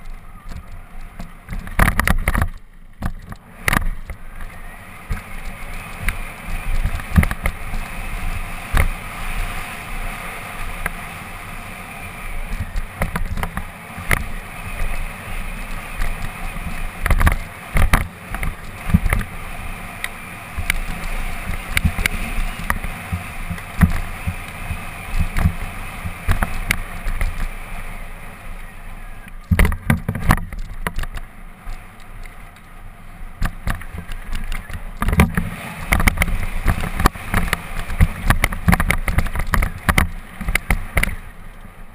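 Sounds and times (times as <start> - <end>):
bike clattering over rocks: 0.0 - 7.9, 29.4 - 32.4, 33.4 - 41.2
steady rush of noise: 0.0 - 41.9
tyres rolling over loose ground: 0.0 - 41.9.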